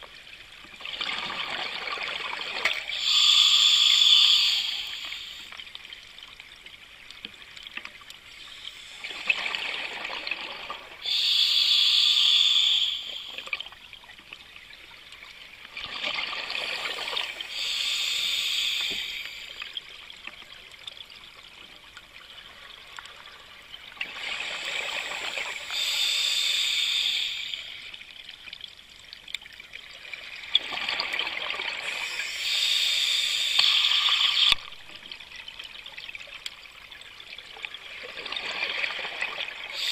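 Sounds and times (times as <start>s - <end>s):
diver breathing through regulator: 2.7s - 5.5s, 11.0s - 13.5s, 16.6s - 19.7s, 24.3s - 28.0s, 31.8s - 34.6s.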